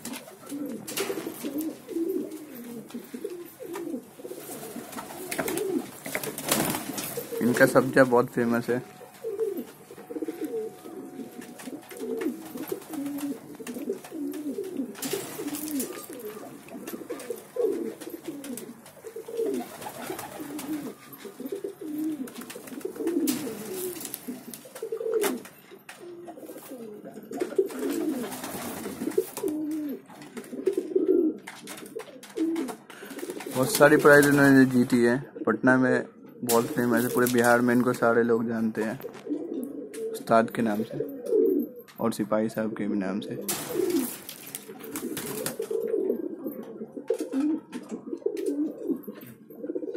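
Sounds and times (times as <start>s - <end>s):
rustling: 0.0s - 27.0s, 43.4s - 46.6s
pigeons cooing: 0.0s - 38.0s, 38.9s - 42.0s, 42.6s - 49.9s.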